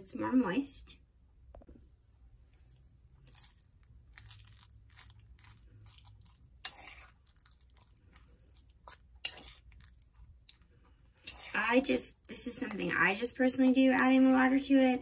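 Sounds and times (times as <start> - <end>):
food squelching and scraping in bowl: 2.3 - 15.0.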